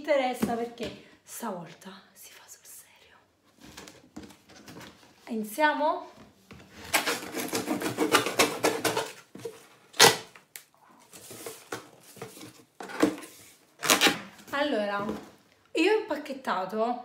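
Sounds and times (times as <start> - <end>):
knife slitting cardboard: 6.8 - 10.3.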